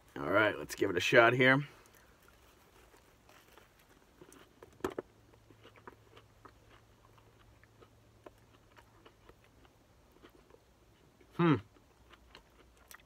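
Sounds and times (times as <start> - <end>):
person chewing: 1.7 - 13.0.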